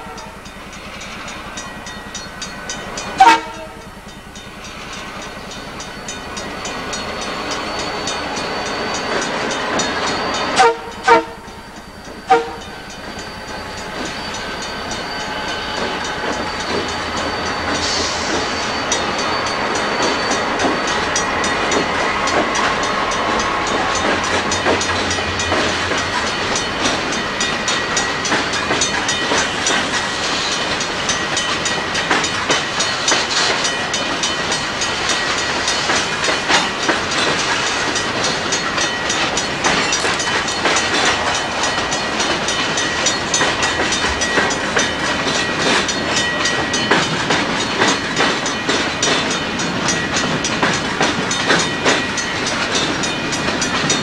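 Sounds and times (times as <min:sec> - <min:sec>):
train wheel clatter: 0:00.0 - 0:54.0
wheels clicking over rail joints: 0:00.0 - 0:54.0
high-pitched wheel squeal: 0:04.6 - 0:47.1.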